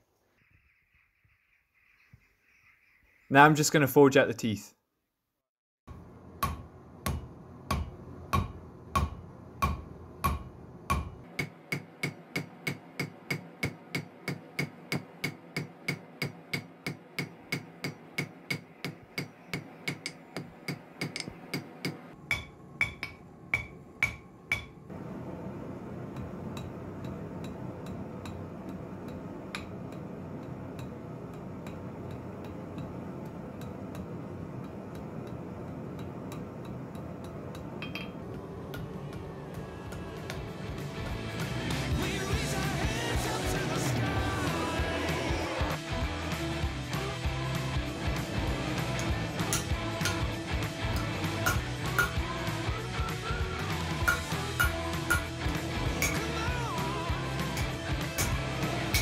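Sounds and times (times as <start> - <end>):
hammer striking steel on anvil: 6.4 - 24.8, 26.6 - 33.0, 33.6 - 38.3, 49.0 - 52.3, 54.0 - 56.6, 57.5 - 59.0
steady low noise: 38.1 - 59.0.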